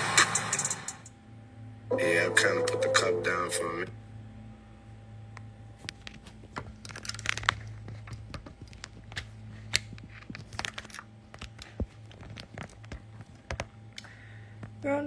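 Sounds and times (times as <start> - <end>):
steady low hum: 1.0 - 15.0.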